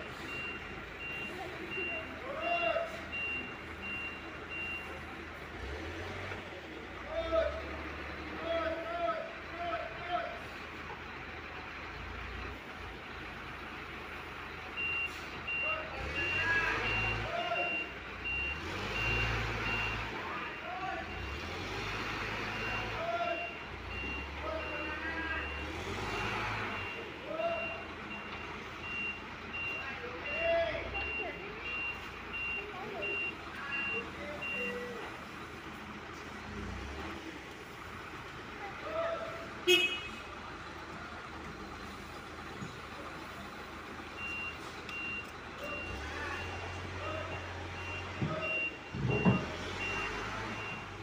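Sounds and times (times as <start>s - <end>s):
reverse alarm beeping: 0.0s - 5.1s, 14.2s - 35.6s, 44.1s - 51.0s
diesel engine running: 0.0s - 51.0s.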